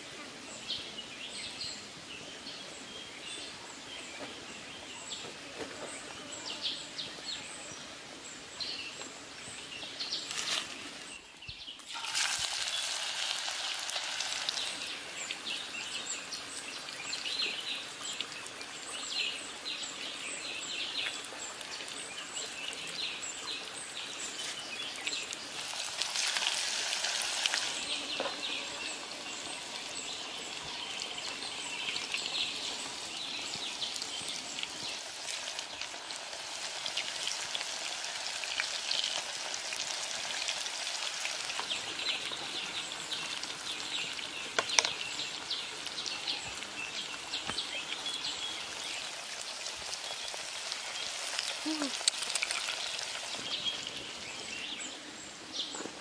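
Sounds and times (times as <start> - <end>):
fish deep-frying in hot oil: 9.9 - 54.6.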